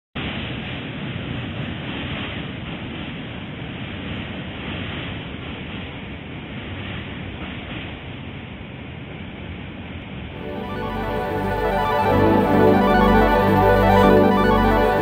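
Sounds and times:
music: 10.4s - 15.0s.

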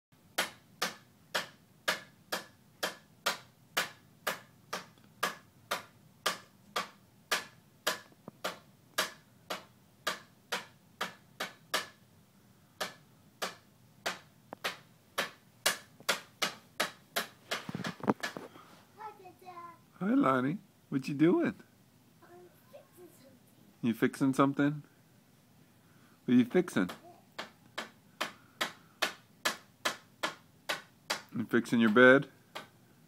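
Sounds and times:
toy hammer tapping on wood: 0.4s - 12.0s, 12.8s - 18.4s, 26.8s - 32.8s.

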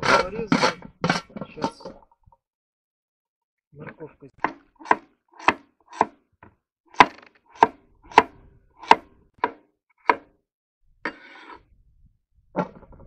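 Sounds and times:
knife chopping on wooden board: 4.4s - 6.2s, 7.0s - 10.3s.

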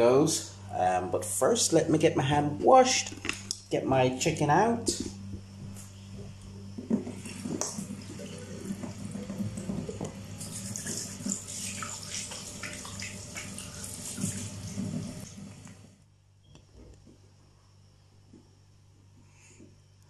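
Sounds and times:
hands washing under water: 6.8s - 15.7s.

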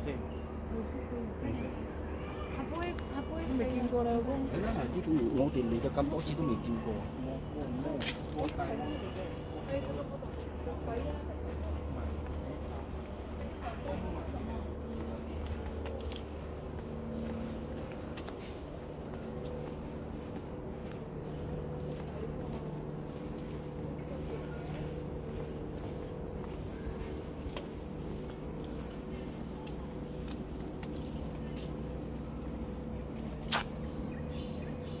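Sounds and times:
high-pitched insect chorus: 0.0s - 35.0s
footsteps on wooden boardwalk: 2.8s - 35.0s.

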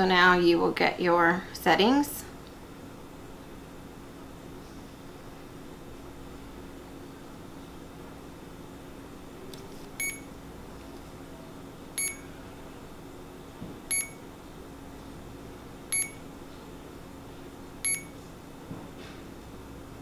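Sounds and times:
infusion pump short high beeps: 10.0s - 10.3s, 12.0s - 12.2s, 13.9s - 14.2s, 15.9s - 16.2s, 17.8s - 18.2s.

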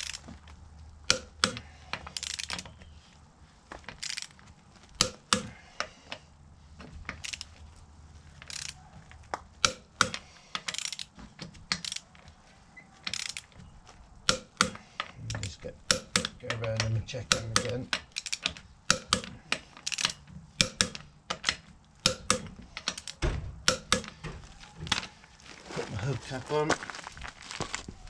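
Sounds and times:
torque wrench ratchet clicks: 2.2s - 2.6s, 10.7s - 11.1s, 17.3s - 24.1s.

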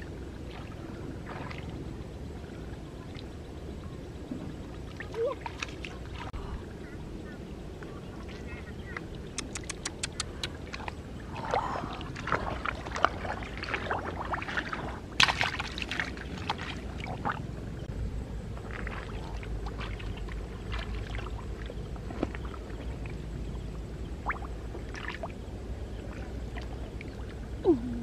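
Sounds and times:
splashing in muddy water: 0.0s - 1.8s, 4.8s - 6.4s, 9.2s - 17.5s, 18.6s - 23.2s, 24.2s - 28.0s.

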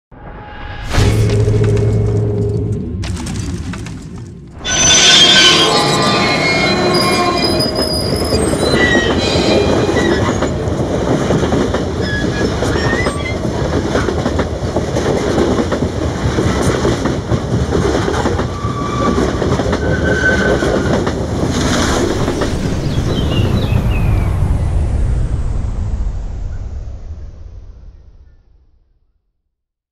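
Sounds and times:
train rolling rumble: 0.9s - 28.4s
brake and wheel squeals: 4.6s - 10.6s, 12.0s - 13.4s, 18.5s - 21.0s.

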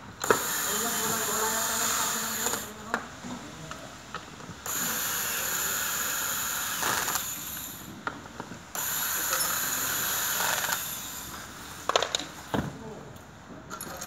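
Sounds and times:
cordless drill driving screws: 0.2s - 2.7s, 4.6s - 7.9s, 8.7s - 12.2s.

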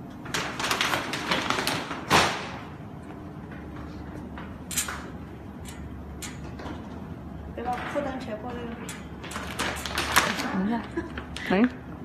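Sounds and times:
plastic bag crackling: 9.3s - 11.4s.

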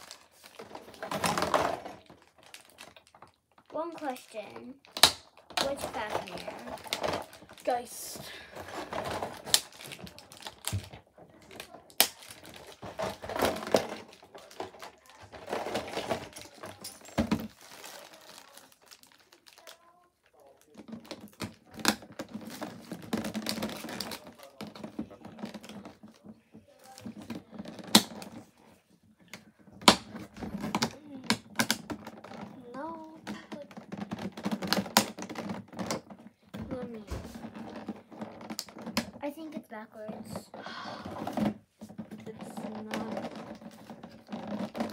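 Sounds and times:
plastic packaging crinkling: 0.0s - 28.4s, 40.6s - 44.9s.

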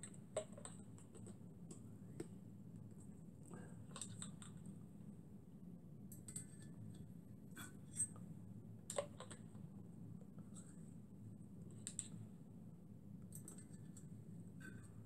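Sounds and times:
small objects clicking and tapping: 0.0s - 2.4s
low steady hum: 0.0s - 15.0s.

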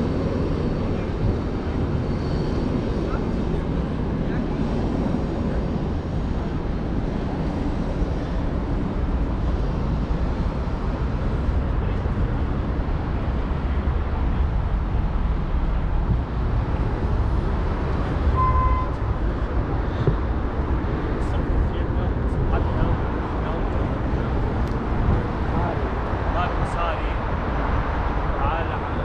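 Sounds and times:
low traffic rumble: 0.0s - 29.0s
short beep: 18.3s - 19.0s.

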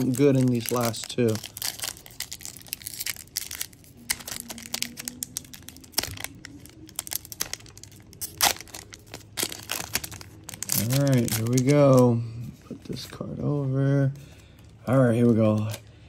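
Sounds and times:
foil wrapper tearing and crinkling: 0.0s - 12.1s.

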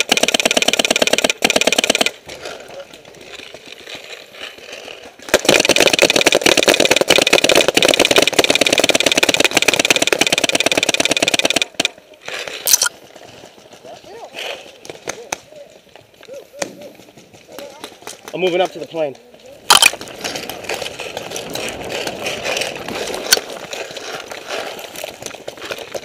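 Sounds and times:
paintball marker rapid firing: 0.0s - 2.2s, 5.3s - 12.0s, 19.7s - 20.0s.

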